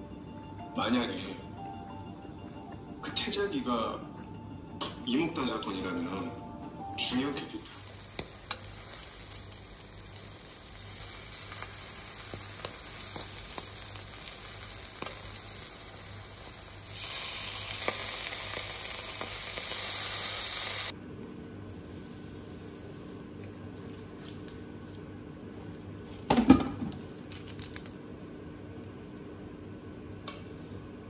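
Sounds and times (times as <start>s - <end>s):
cheese sizzling in a frying pan: 7.4s - 21.0s.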